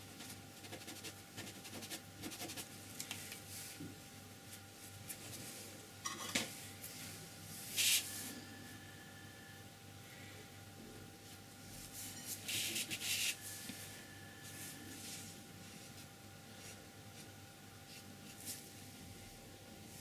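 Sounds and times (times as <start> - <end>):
brush scratching on paper: 0.6 - 2.7.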